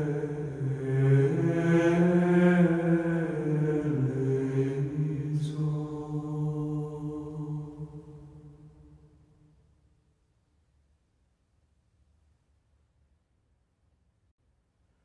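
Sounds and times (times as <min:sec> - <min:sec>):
low vocal chant: 0:00.0 - 0:09.0.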